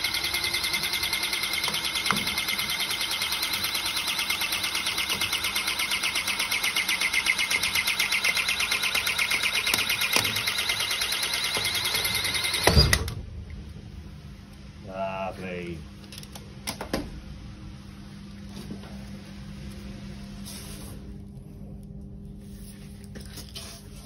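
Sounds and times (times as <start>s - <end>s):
hydraulic cable cutter pumping: 0.0s - 13.1s.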